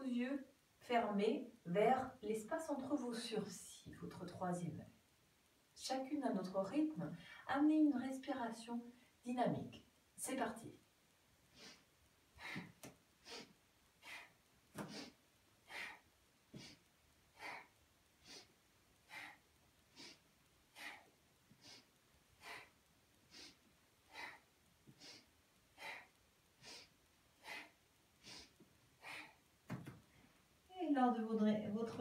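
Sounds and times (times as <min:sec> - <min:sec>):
woman breathing quickly: 0:11.5 - 0:30.3.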